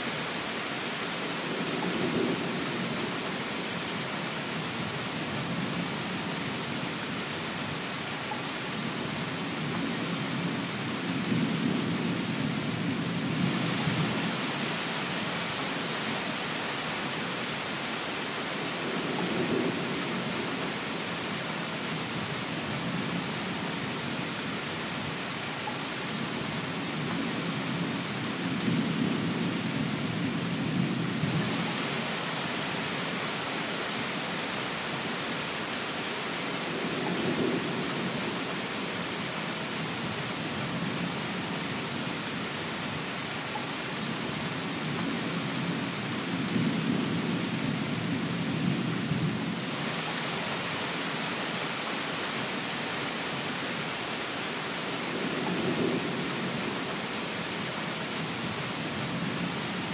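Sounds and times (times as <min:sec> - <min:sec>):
steady rain: 0:00.0 - 0:59.9
low rolls of thunder: 0:36.7 - 0:38.5, 0:55.1 - 0:56.9.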